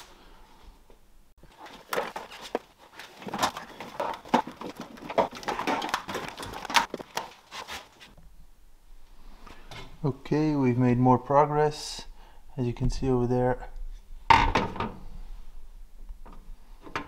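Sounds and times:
hands handling wiring: 0:01.4 - 0:08.2.

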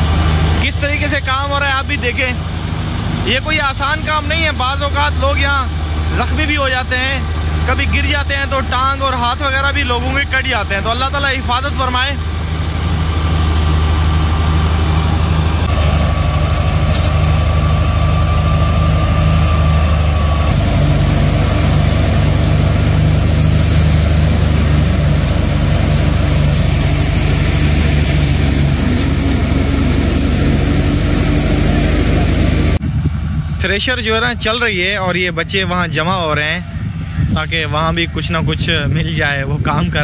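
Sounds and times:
thresher rattle: 0:00.0 - 0:32.8
tractor engine drone: 0:00.0 - 0:40.0.

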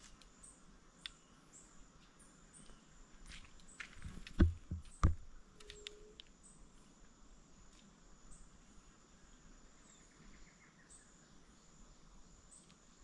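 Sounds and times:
insects buzzing: 0:00.0 - 0:13.0
dull thumps: 0:04.0 - 0:05.3.

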